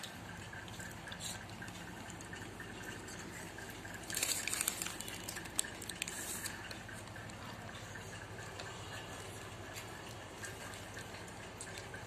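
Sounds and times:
low steady hum: 0.0 - 12.0
paper wrapper crinkling: 4.1 - 6.8.

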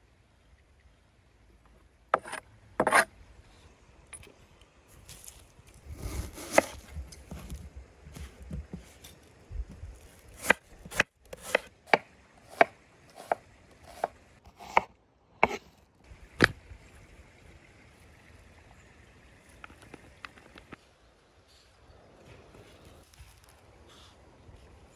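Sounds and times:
rustling handling noise: 4.9 - 10.8.

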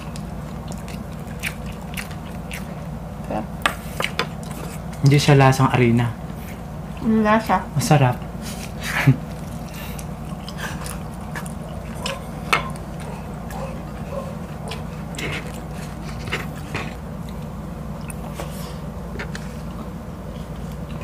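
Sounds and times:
chewing with wet mouth clicks: 0.0 - 5.2, 9.2 - 18.5
steady low hum: 0.0 - 21.0.

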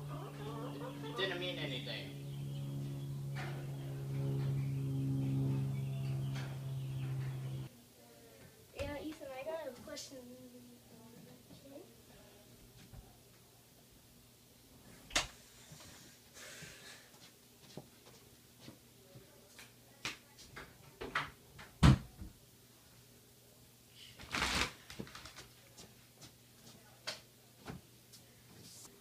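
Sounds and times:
rustling: 24.2 - 25.8.

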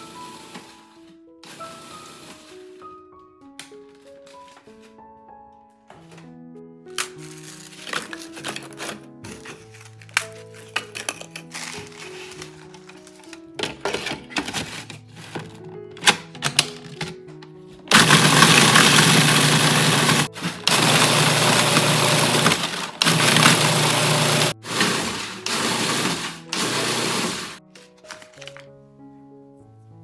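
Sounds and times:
food processor grinding: 17.9 - 27.6.

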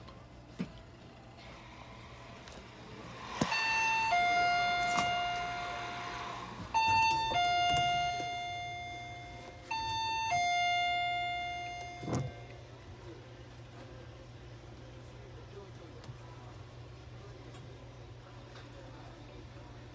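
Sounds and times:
electronic two-tone chime: 3.4 - 12.5.

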